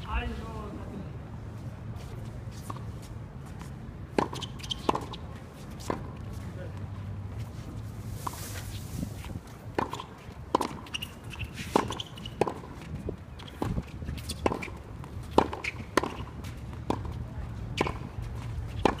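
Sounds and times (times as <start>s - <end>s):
tennis balls struck by racquets: 4.1s - 6.9s, 9.6s - 19.0s.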